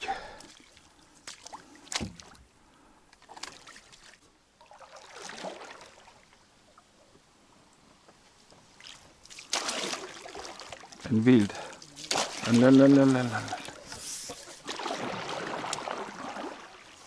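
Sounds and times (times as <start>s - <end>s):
oars swishing through water: 0.0s - 7.2s, 8.0s - 17.0s
water trickling: 8.8s - 17.0s.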